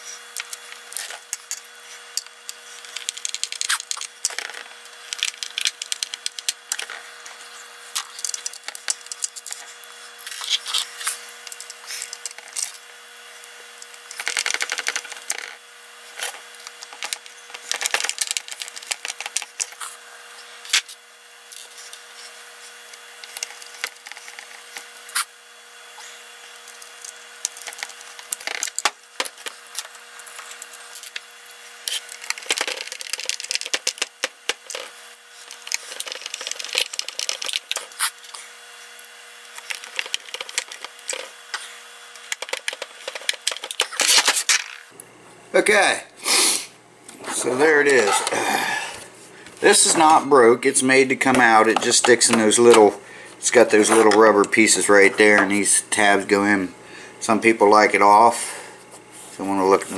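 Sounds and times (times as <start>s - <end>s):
faint steady hum: 0.0s - 59.9s
screwdriver scraping plastic: 0.2s - 7.3s, 7.9s - 12.9s, 13.8s - 20.0s, 20.6s - 25.3s, 26.5s - 44.6s.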